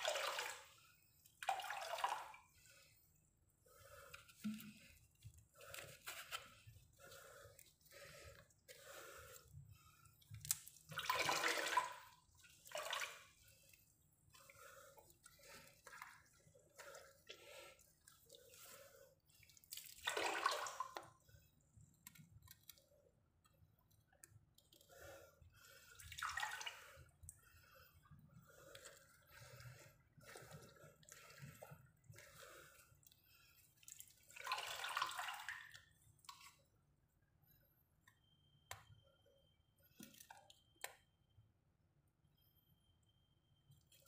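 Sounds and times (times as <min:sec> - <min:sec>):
water sloshing and splashing: 0:00.0 - 0:21.5, 0:24.6 - 0:36.7.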